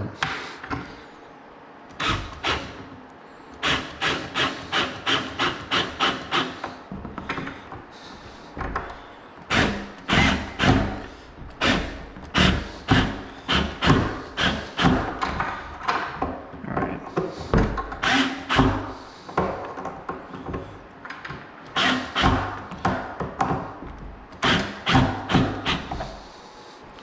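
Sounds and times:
power drill pulsing into particleboard: 3.6 - 6.7, 9.5 - 15.2, 18.0 - 19.0, 21.7 - 22.6, 24.4 - 26.0.

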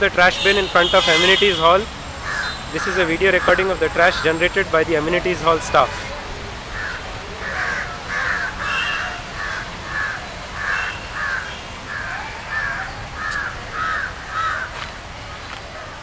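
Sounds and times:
crows cawing: 2.2 - 2.6, 3.4 - 4.4, 6.7 - 14.8.

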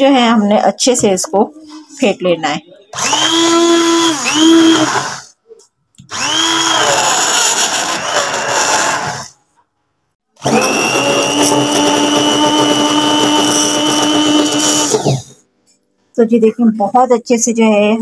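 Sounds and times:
hand blender motor whining: 3.0 - 5.3, 6.1 - 9.4, 10.4 - 15.4.

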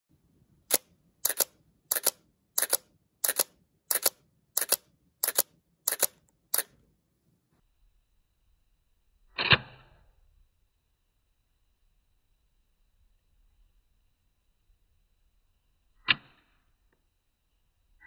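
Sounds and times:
camera shutter clacking: 0.7 - 6.7.

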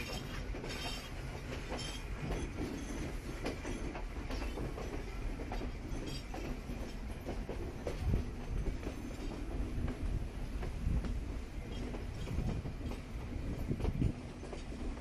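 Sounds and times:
wheels clattering over rail joints: 0.0 - 10.0
train rumbling: 0.0 - 15.0.

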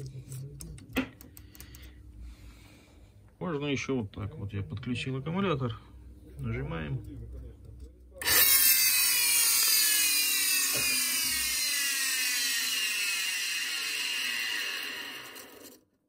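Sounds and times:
motor high rough whine: 8.2 - 15.8.

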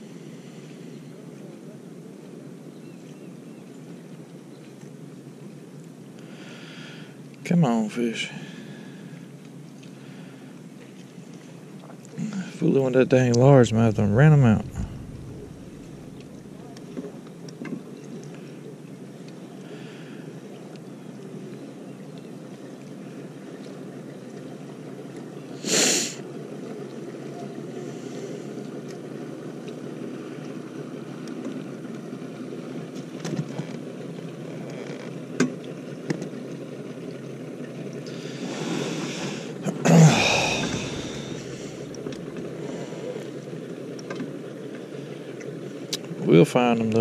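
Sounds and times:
wind and water noise: 0.0 - 47.0
loud rush of noise: 13.4 - 16.7, 39.9 - 43.0.

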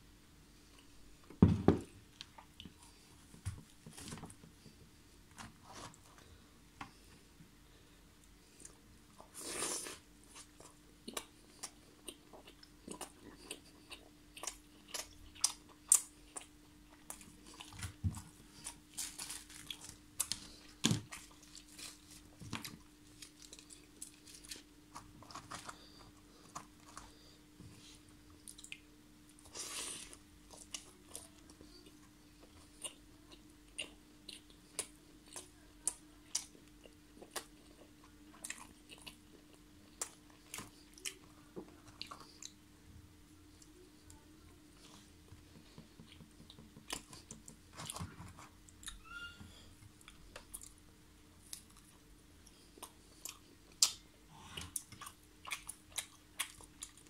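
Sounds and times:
faint steady hum: 0.0 - 57.0
close-miked chewing: 8.2 - 42.7, 49.9 - 50.8, 51.4 - 57.0.

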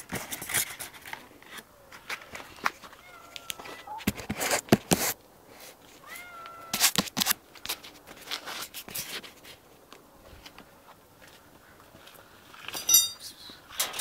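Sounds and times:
cat meowing: 2.9 - 4.0, 6.0 - 7.0.

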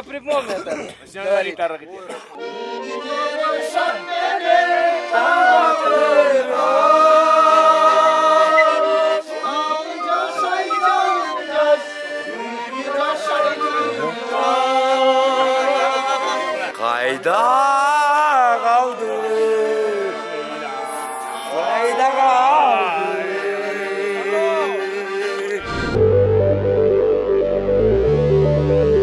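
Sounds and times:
music with wavering singing: 5.2 - 16.7.

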